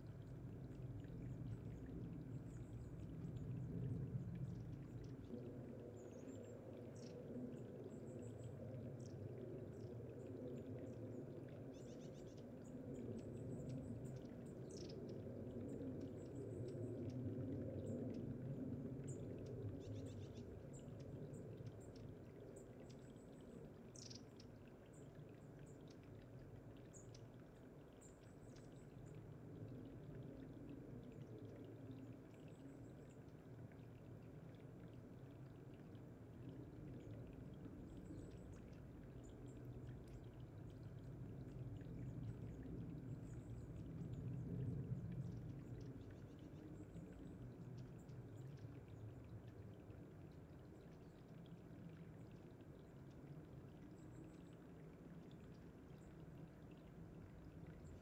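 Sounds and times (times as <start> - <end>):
water trickling over stone: 0.0 - 58.0.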